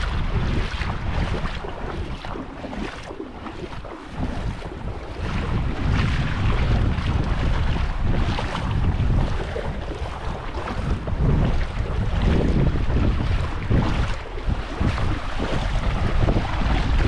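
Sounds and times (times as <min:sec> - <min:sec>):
small waves washing: 0:00.0 - 0:17.0
wind buffeting microphone: 0:00.0 - 0:17.0.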